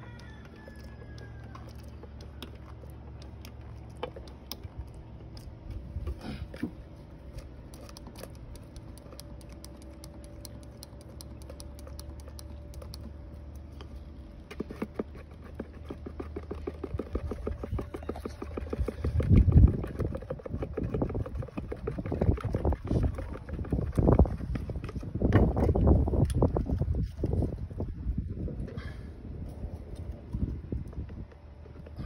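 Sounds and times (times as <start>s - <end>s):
stick scraping plastic cup: 13.8s - 27.3s.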